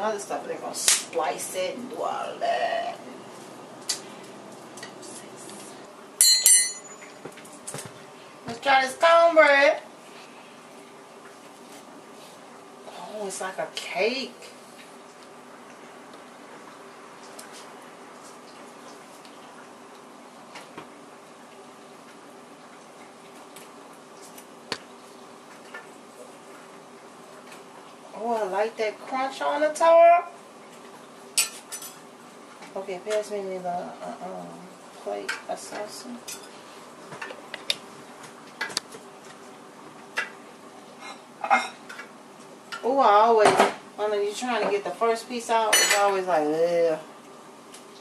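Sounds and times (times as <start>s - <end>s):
metal spoon clinking on pot: 6.2s - 7.1s.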